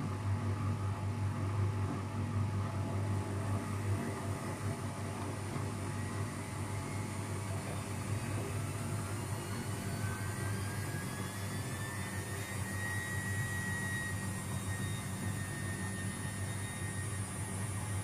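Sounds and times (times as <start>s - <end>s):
washing machine humming: 0.0s - 18.0s
motor whine: 5.7s - 18.0s.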